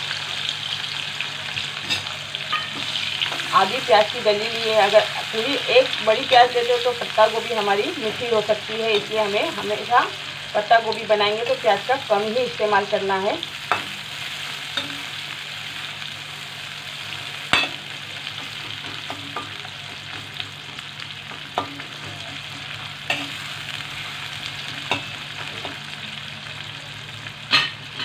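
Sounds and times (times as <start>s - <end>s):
onions sizzling in hot oil: 0.0s - 28.0s.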